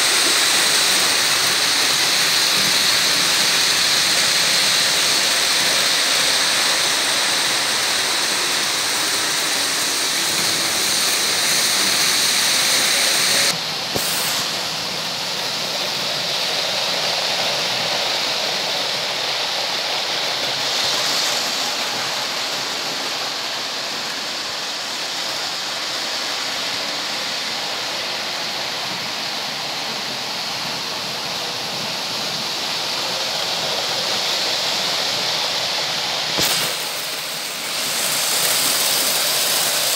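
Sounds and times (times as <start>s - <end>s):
model train wheels rumbling: 0.0s - 15.0s, 33.0s - 39.9s.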